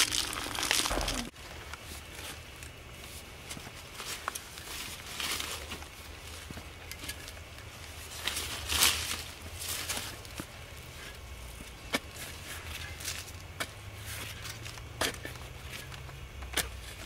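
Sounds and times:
spade cutting and scraping soil: 11.8s - 17.0s.

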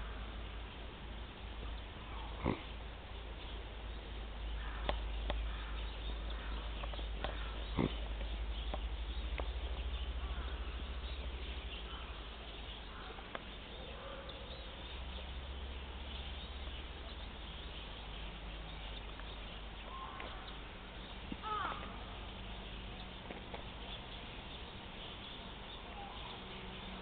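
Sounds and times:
faint sharp clicks: 4.8s - 5.5s.

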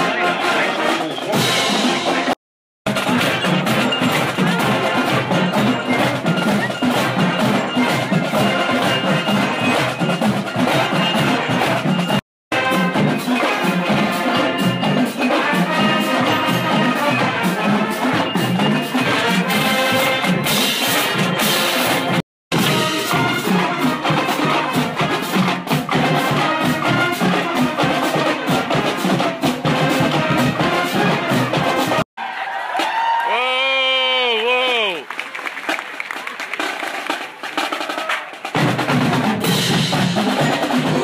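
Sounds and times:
cymbals: 0.0s - 32.0s, 37.1s - 41.0s
snare drums: 0.0s - 32.1s, 33.8s - 41.0s
brass and sousaphones: 0.0s - 32.4s
bass drums: 1.3s - 32.0s.

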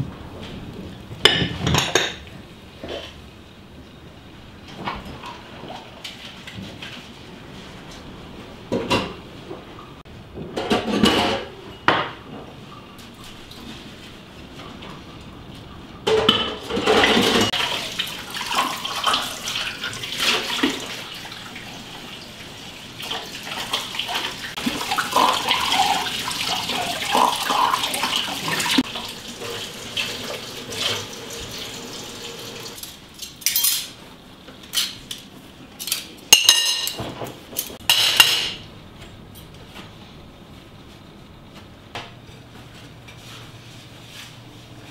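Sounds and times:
crockery and cutlery clinking: 32.8s - 34.0s, 35.8s - 38.6s.

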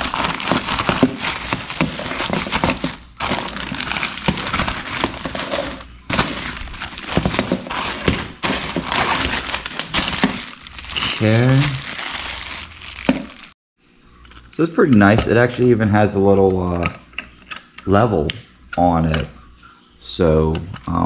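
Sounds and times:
plastic rustling and crinkling: 0.0s - 13.6s.

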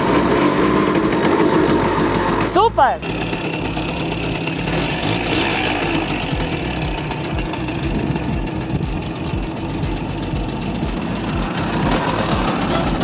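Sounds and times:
moped engine idling: 0.0s - 13.0s.

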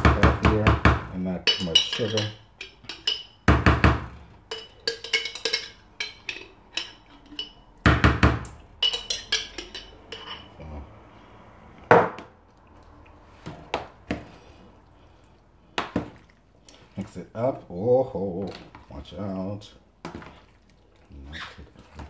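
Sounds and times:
metal spoon clinking in jar: 1.5s - 3.4s, 4.5s - 7.7s, 8.8s - 10.5s.

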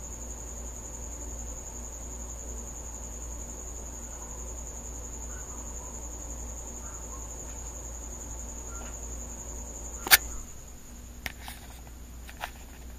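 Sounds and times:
cricket trilling: 0.0s - 12.9s
sharp loud click: 10.0s - 10.4s.

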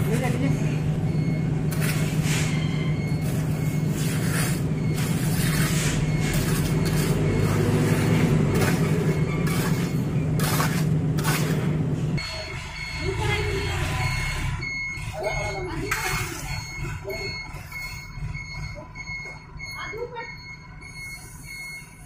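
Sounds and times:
trowel scraping wet concrete: 1.7s - 11.8s.

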